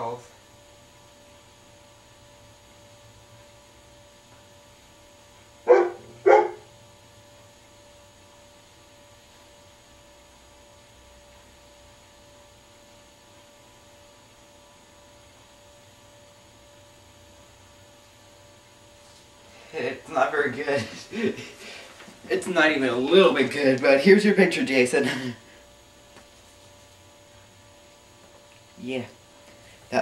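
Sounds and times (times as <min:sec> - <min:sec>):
electrical hum: 0:00.0 - 0:30.0
dog barking: 0:05.7 - 0:06.6.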